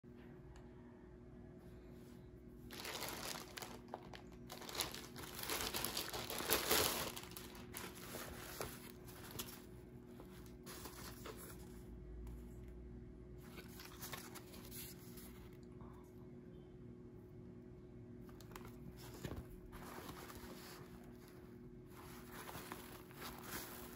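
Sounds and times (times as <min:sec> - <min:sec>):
faint steady hum: 0:00.0 - 0:23.9
plastic bag crinkling: 0:02.7 - 0:09.7, 0:21.9 - 0:23.9.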